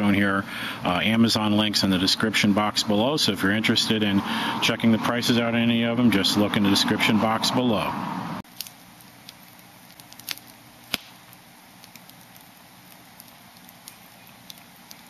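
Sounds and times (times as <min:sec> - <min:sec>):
campfire crackling: 0:00.0 - 0:15.0
soft steady hiss: 0:08.4 - 0:15.0
loud fire pops: 0:08.5 - 0:15.0.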